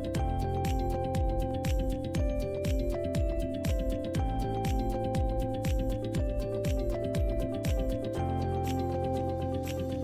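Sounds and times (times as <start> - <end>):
deep kick drum beat: 0.1 - 8.0.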